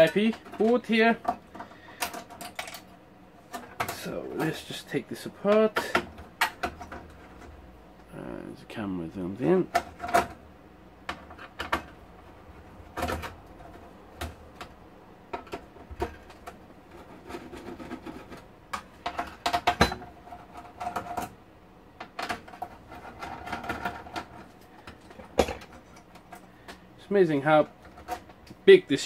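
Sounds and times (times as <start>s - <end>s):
clicks and rattles of handled parts: 0.0s - 4.7s, 11.0s - 12.0s, 12.6s - 21.4s, 22.0s - 28.6s.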